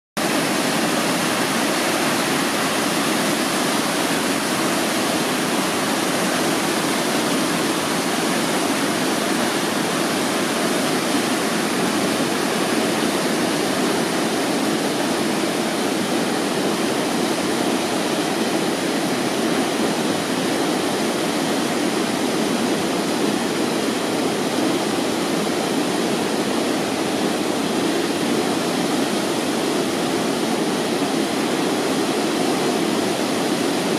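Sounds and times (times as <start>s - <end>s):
river rapids rushing: 0.2s - 33.9s.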